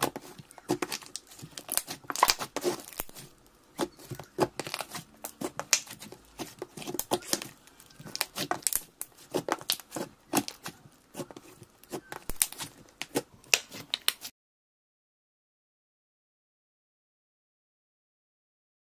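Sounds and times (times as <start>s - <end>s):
sticky slime clicks and crackles: 0.0s - 14.3s.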